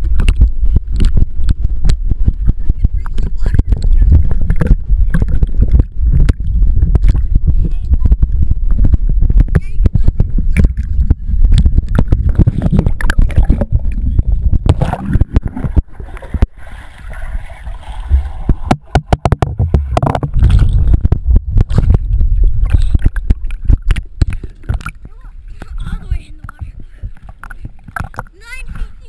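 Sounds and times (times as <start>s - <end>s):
pool water sloshing: 14.7s - 29.0s.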